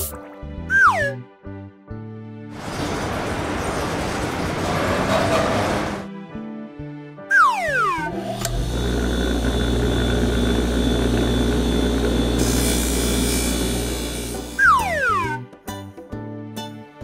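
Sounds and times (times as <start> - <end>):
car-wash brush machine whirring: 2.6 - 6.1, 8.1 - 14.7
falling whistle: 14.6 - 15.4.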